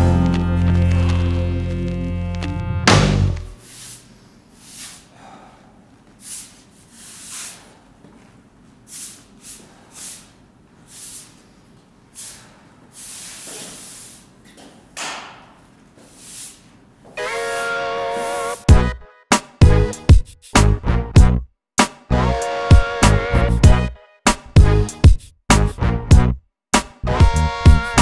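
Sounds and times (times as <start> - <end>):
broom sweeping concrete floor: 3.6 - 5.2, 6.1 - 14.4, 16.0 - 16.8.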